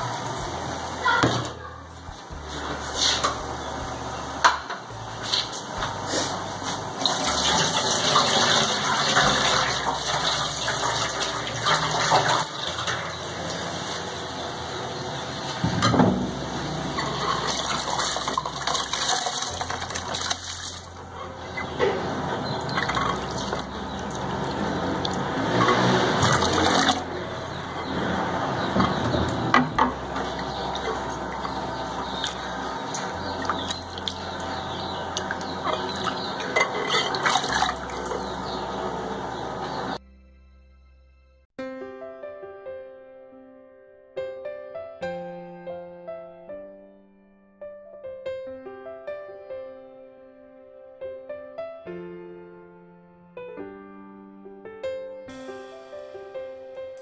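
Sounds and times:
rice and water pouring in: 7.0s - 13.7s, 17.0s - 21.0s, 37.1s - 38.2s
water boiling in a pot: 7.0s - 15.3s, 16.3s - 21.0s.

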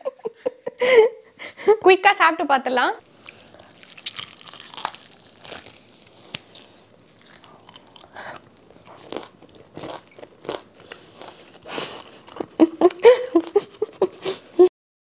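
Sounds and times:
person chewing crunchy food: 3.0s - 14.4s.

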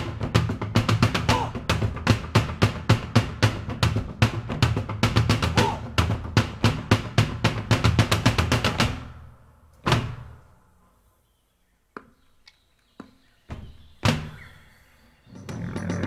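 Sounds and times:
drums playing: 0.0s - 9.1s
music: 0.0s - 10.3s, 15.2s - 16.0s.

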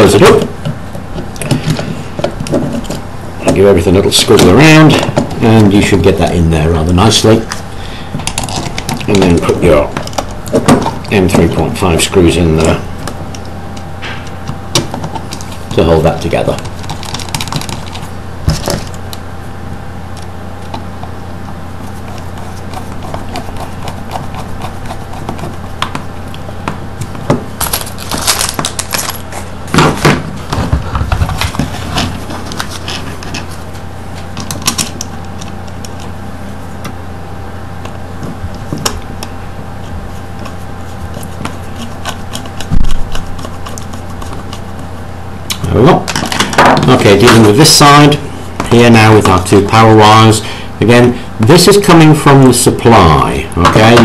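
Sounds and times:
steady low hum: 0.0s - 54.0s
hands handling plastic and wires: 14.2s - 19.2s, 22.0s - 36.2s.

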